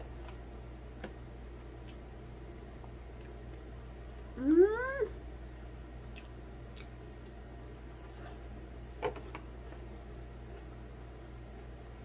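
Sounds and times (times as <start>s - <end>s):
woman humming mmm: 4.3s - 5.2s.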